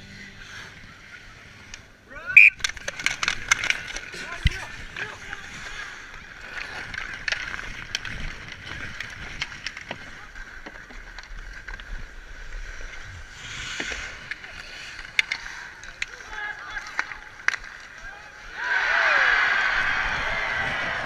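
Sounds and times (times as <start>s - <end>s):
hockey sticks and puck clacking: 2.4s - 18.4s
skate blades scraping ice: 2.5s - 18.6s.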